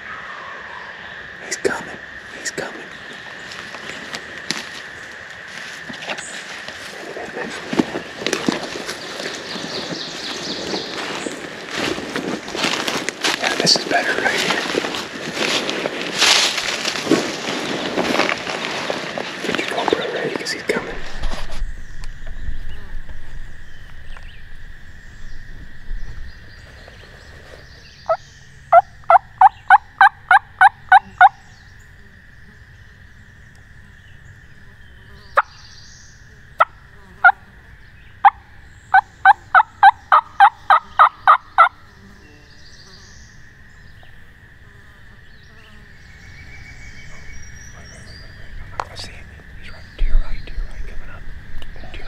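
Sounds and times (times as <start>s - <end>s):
turkey yelping: 38.2s - 41.7s.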